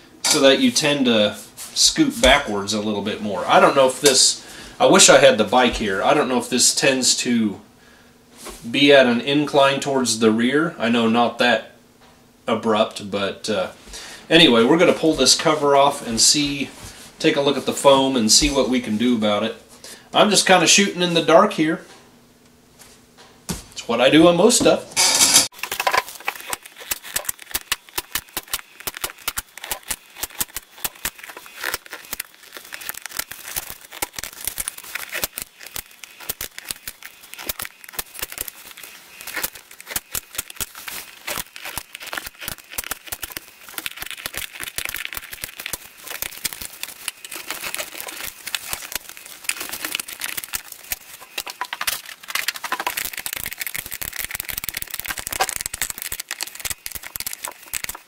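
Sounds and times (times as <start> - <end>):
vinyl seat cover crinkling: 25.5 - 58.0.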